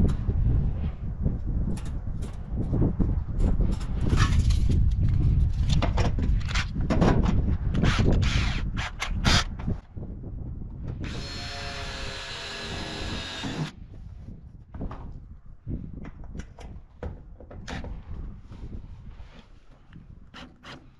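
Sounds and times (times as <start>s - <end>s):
cordless drill driving screw: 11.0s - 13.7s.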